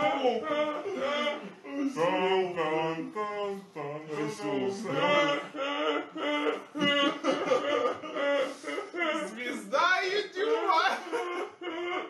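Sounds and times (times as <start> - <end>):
woman laughing hard: 4.9 - 9.4, 10.5 - 12.0.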